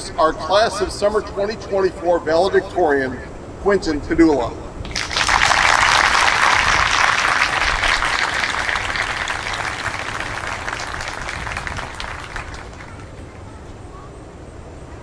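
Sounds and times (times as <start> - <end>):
audience applauding: 4.9 - 13.6.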